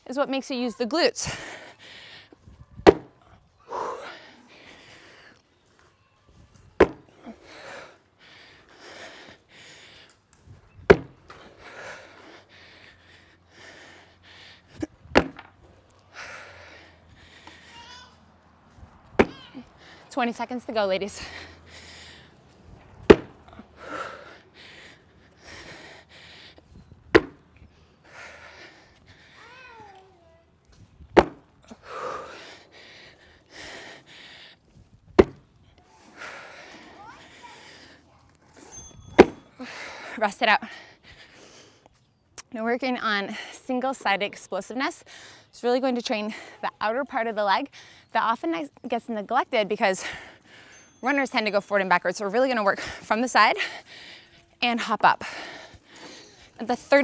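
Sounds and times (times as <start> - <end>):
hard rhythmic breathing: 1.1 - 5.9, 6.6 - 42.3, 44.9 - 48.2, 49.4 - 57.0
feet landing on wooden box: 2.8 - 3.1, 6.8 - 7.0, 10.9 - 11.2, 15.1 - 15.5, 19.2 - 19.4, 23.0 - 23.4, 27.1 - 27.4, 31.1 - 31.4, 35.2 - 35.4.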